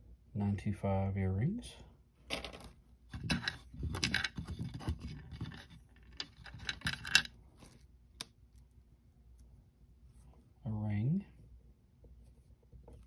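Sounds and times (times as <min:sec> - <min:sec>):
metal jewelry clinking on wood: 0:05.4 - 0:07.4.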